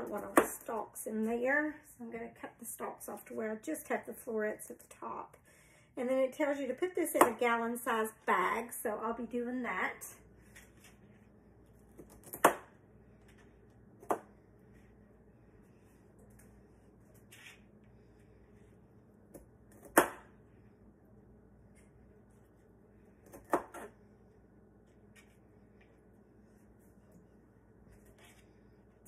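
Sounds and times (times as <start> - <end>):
knife chopping broccoli: 11.9 - 12.8, 14.0 - 14.3, 19.3 - 20.4, 23.2 - 24.0.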